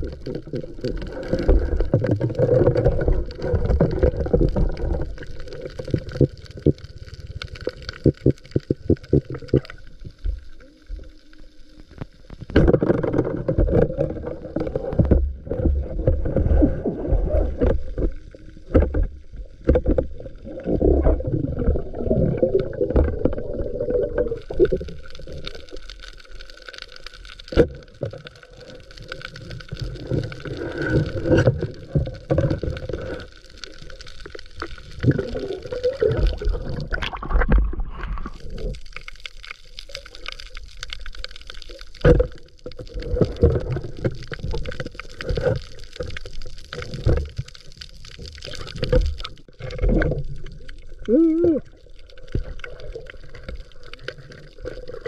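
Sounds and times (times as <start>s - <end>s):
muffled underwater sloshing: 12.2s - 26.7s.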